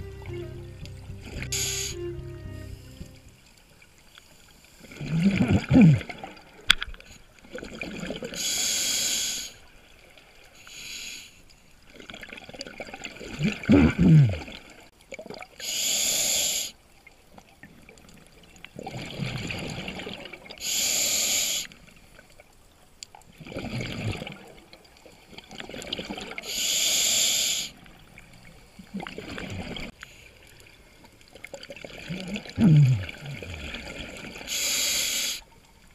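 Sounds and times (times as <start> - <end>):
exhaled bubbles gurgling: 4.8 - 6.6, 12.1 - 15.6, 18.7 - 20.6, 23.4 - 24.7, 28.8 - 30.0, 31.4 - 34.6
diver inhaling through regulator: 8.4 - 9.6, 15.6 - 16.7, 20.6 - 21.7, 26.4 - 27.8, 32.6 - 33.9, 34.5 - 35.5.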